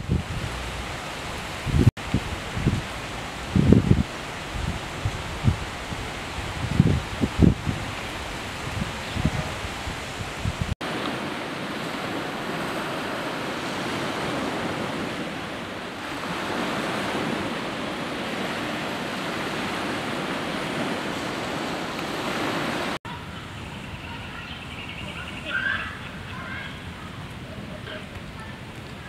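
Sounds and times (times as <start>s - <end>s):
waves washing onto pebbles: 0.0s - 23.0s.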